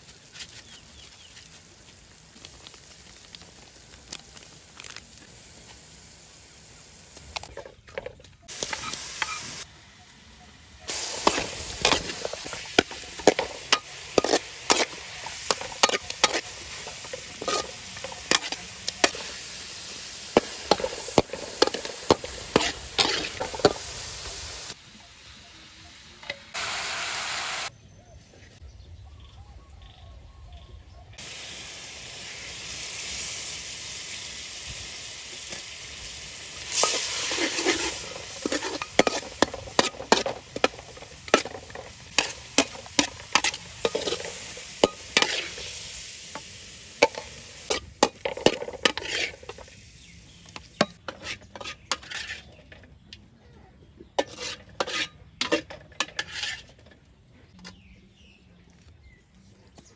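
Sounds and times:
food sizzling in oil in a wok: 0.1 - 7.6, 8.4 - 27.7, 31.2 - 52.4
metal spatula scraping wok: 7.5 - 9.6, 10.9 - 24.8, 36.6 - 53.1, 54.1 - 57.0.

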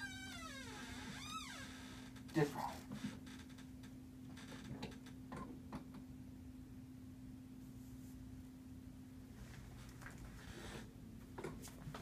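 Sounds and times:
recliner chair creaking: 0.0 - 3.7.

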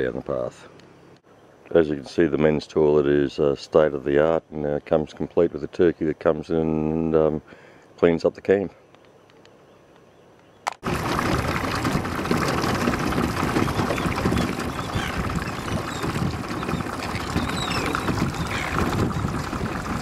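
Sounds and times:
water rushing past boat: 10.8 - 20.0
wind buffeting microphone: 10.8 - 20.0
distant seabird calls: 12.1 - 20.0.

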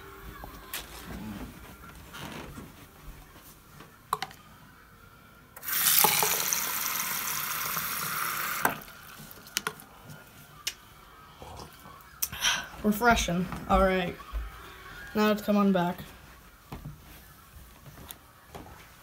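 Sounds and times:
faucet running into plastic cup: 5.6 - 9.8.

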